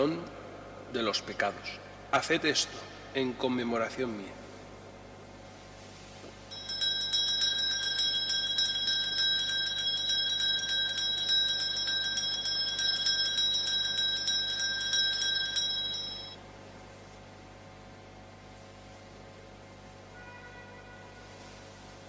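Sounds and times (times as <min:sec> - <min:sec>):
altar bells ringing: 0:06.5 - 0:16.4.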